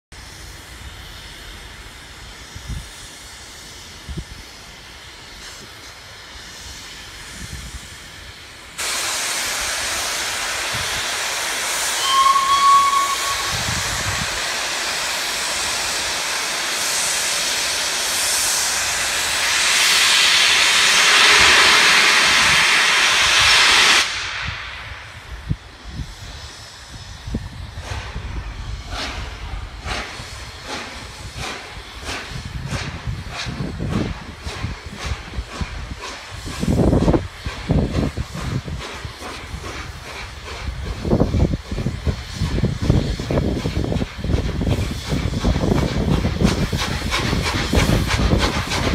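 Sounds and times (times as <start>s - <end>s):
steam locomotive blowing off steam: 0.2s - 48.9s
steam whistle note: 11.9s - 13.8s.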